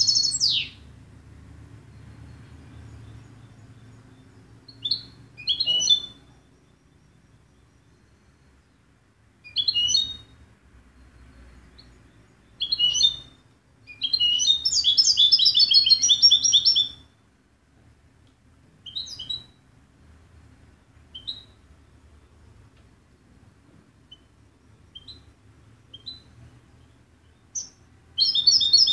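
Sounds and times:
goldfinch twittering song: 0.0 - 0.9, 1.8 - 10.4, 11.0 - 17.1, 18.8 - 19.6, 21.1 - 21.6, 24.0 - 28.9.

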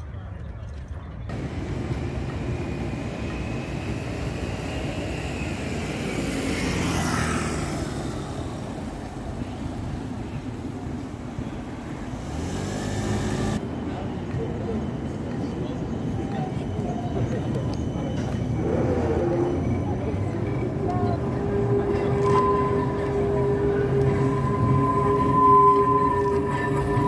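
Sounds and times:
tram passing: 1.2 - 27.0.

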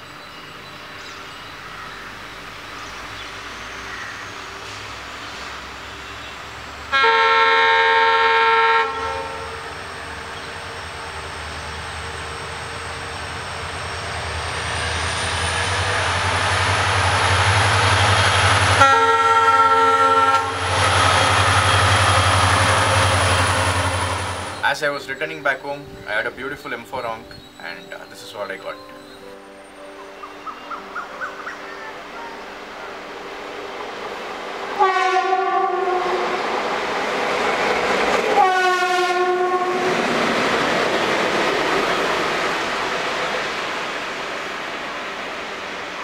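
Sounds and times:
passing train noise: 0.0 - 46.0
diesel locomotive horn blasts: 6.2 - 16.3, 17.4 - 24.6, 34.7 - 36.7, 38.2 - 40.2
locomotive engine rumble: 8.9 - 25.1.

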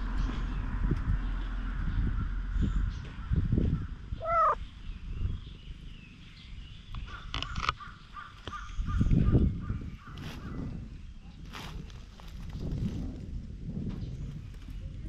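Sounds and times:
animal call: 4.2 - 4.6.

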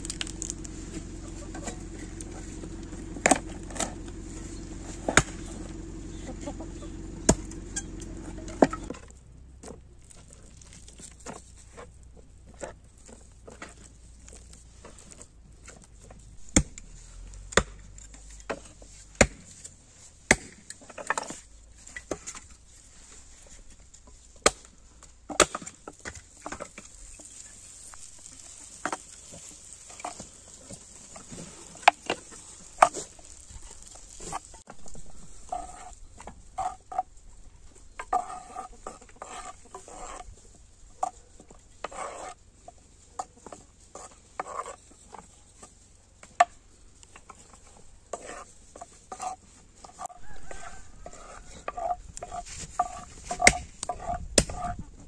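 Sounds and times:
cleaver chopping on wooden board: 16.5 - 16.9, 17.5 - 17.9, 19.2 - 19.5, 20.3 - 20.6.

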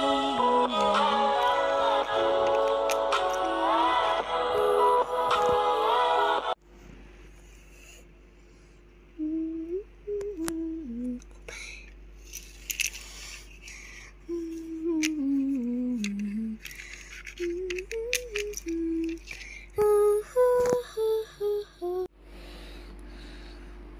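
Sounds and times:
person humming: 0.0 - 6.5, 9.2 - 11.5, 14.2 - 16.7, 17.4 - 22.1.

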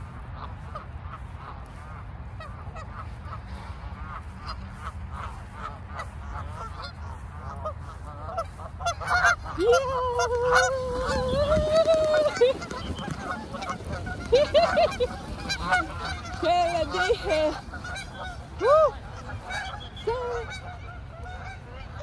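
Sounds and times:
geese honking: 0.0 - 22.0.

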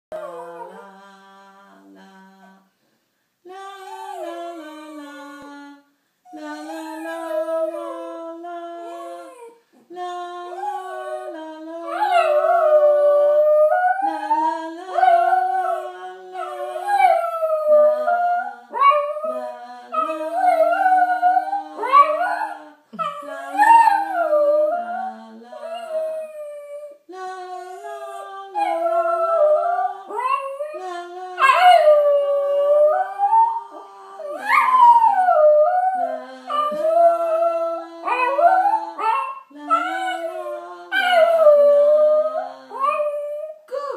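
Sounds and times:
woman singing low notes: 0.1 - 2.7, 3.4 - 43.9.

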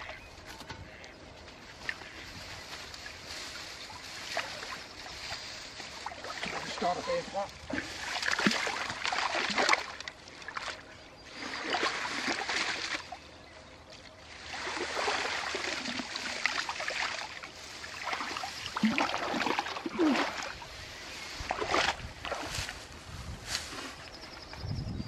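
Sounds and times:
water pouring off net: 14.4 - 20.6.

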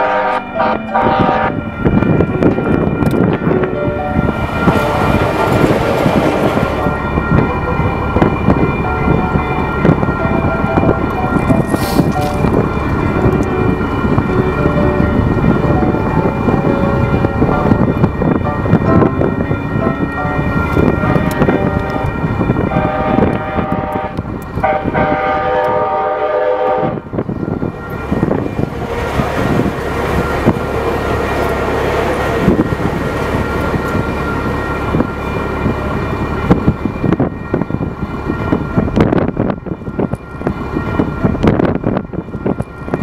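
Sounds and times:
train horn blasts: 0.0 - 2.6, 20.2 - 29.7
train rumbling on rails: 0.0 - 43.0.

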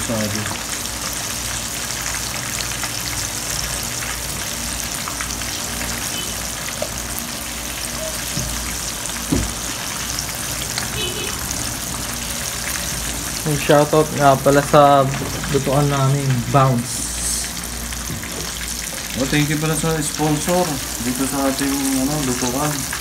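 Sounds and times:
shrimp sizzling in hot oil: 0.0 - 23.0.

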